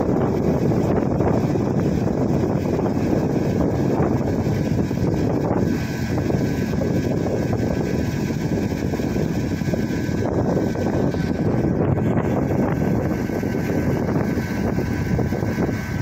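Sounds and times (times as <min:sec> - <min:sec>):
truck engine running: 0:00.0 - 0:16.0
wind buffeting microphone: 0:00.0 - 0:16.0.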